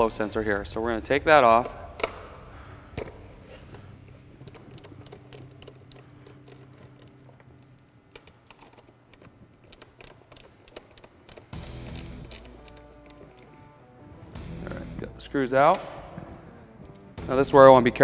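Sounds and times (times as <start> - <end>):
screwdriver clicks and ticks: 8.1 - 13.5.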